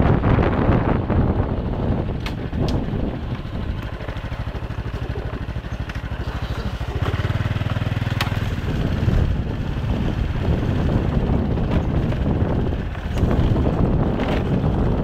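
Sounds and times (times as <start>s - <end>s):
moped engine running: 0.0s - 15.0s
sharp click: 2.2s - 2.8s.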